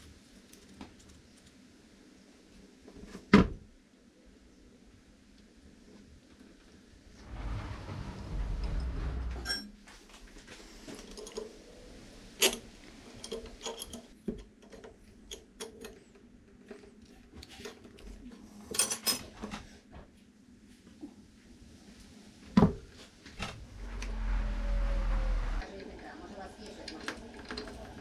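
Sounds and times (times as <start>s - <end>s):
low rumbling noise: 7.2s - 9.5s, 23.4s - 25.7s
metal tools clinking: 12.4s - 16.0s.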